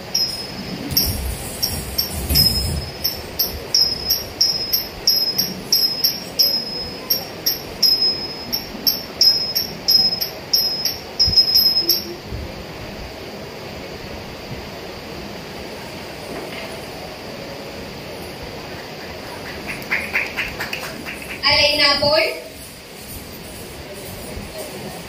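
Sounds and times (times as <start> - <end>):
hand cymbals ringing: 0.0 - 12.2.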